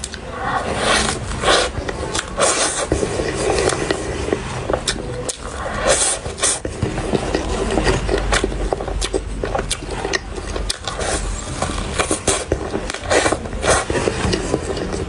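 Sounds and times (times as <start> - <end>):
chewing with wet mouth clicks: 4.8 - 15.0.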